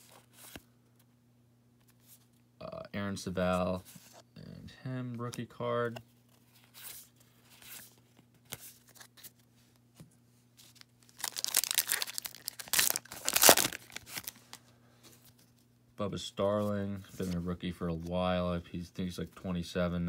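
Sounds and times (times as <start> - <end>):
card pack wrapper tearing and crinkling: 10.7 - 14.6.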